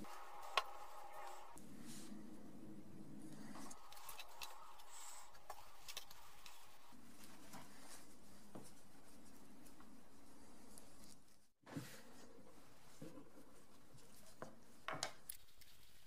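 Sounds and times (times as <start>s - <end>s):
soft taps and rustles: 7.2s - 10.0s.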